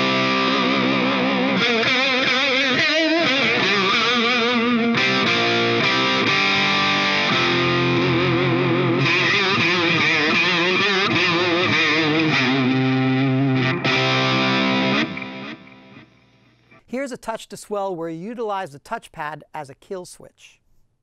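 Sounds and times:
distorted electric guitar chords: 0:00.0 - 0:16.8.

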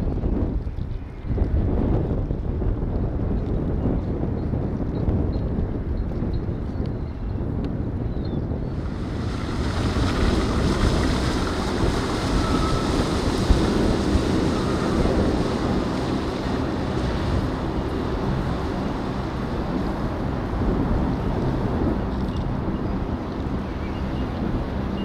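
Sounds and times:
wind buffeting microphone: 0:00.0 - 0:25.0
water and waves rushing: 0:08.7 - 0:25.0.

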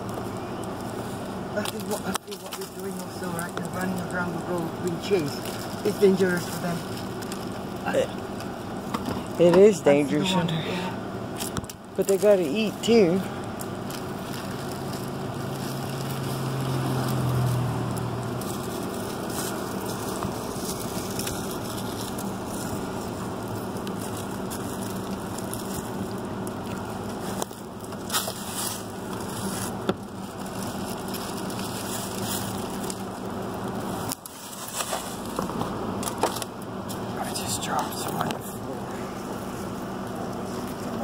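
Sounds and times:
steady background hum: 0:00.0 - 0:16.7
dry leaves crackling: 0:00.0 - 0:41.0
vehicle passing: 0:12.3 - 0:41.0.

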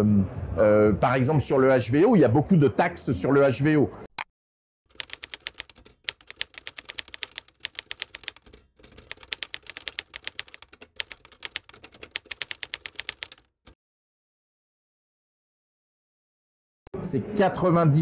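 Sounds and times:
typewriter keystroke clicks: 0:04.9 - 0:13.4.

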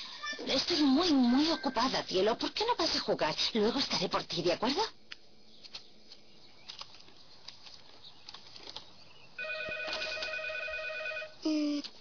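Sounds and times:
telephone ringing: 0:09.4 - 0:11.4.

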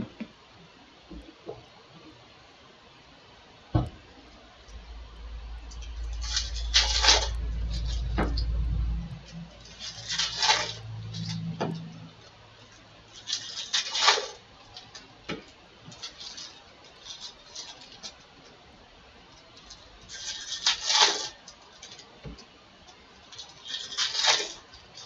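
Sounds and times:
low hum: 0:03.8 - 0:13.1
wrappers crinkling: 0:04.7 - 0:18.6, 0:19.3 - 0:22.2, 0:23.1 - 0:25.0.

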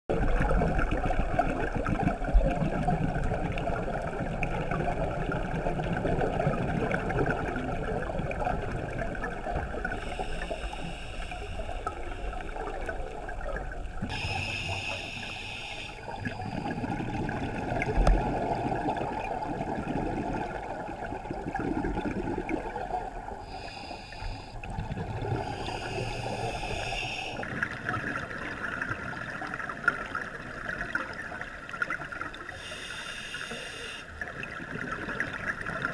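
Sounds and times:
exhaled bubbles gurgling underwater: 0:00.1 - 0:35.9
regulator breath hiss: 0:10.0 - 0:12.7, 0:14.1 - 0:16.5, 0:23.5 - 0:24.6, 0:25.4 - 0:27.4, 0:32.6 - 0:34.1.

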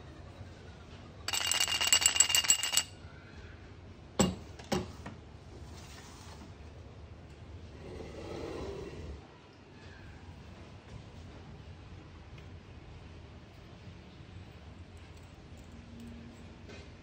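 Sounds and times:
metallic rattle with ringing tone: 0:01.3 - 0:03.0
metal knocks on counter: 0:04.2 - 0:04.9.

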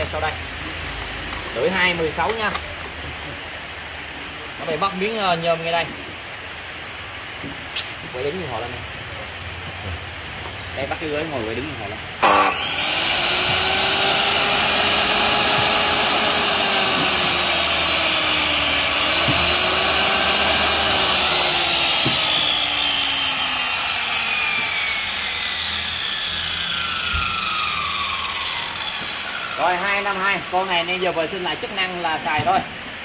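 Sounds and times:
miter saw motor whining: 0:12.2 - 0:30.8.

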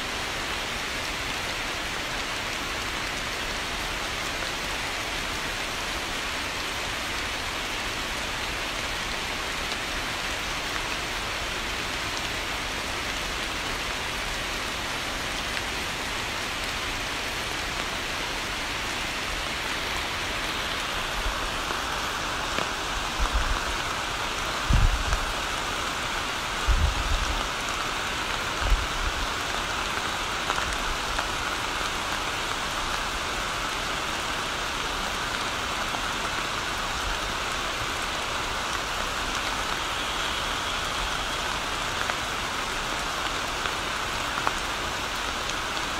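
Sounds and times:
rain falling on water: 0:00.0 - 0:45.9.

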